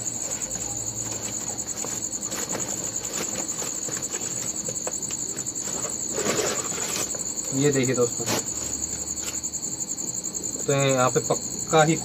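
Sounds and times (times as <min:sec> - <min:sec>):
crickets chirping: 0:00.0 - 0:12.0
plastic sack rustling: 0:00.1 - 0:09.4.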